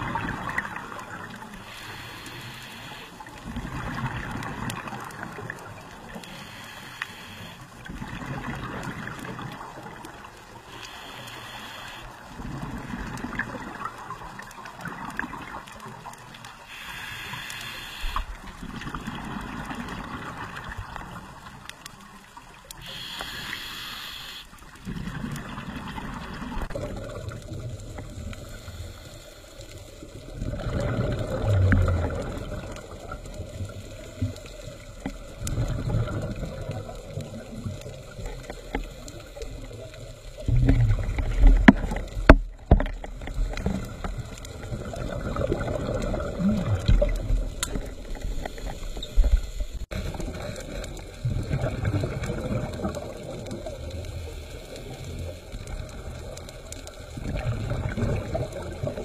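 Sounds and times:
exhaled bubbles gurgling: 0.0s - 6.6s, 7.6s - 59.0s
regulator hissing inhale: 1.6s - 3.3s, 6.2s - 7.7s, 10.6s - 12.3s, 16.6s - 18.4s, 22.8s - 24.6s.

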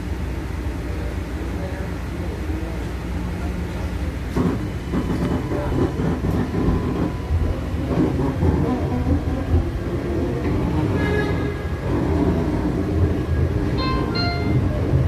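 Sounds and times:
tram rumble from inside: 0.0s - 15.0s
rail clicks: 3.7s - 15.0s.

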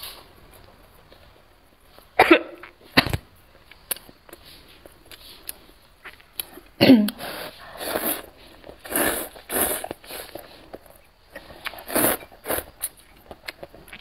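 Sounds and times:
woman coughing: 2.2s - 3.1s, 6.8s - 7.2s
slurping noodles: 7.2s - 10.7s, 11.4s - 13.0s.

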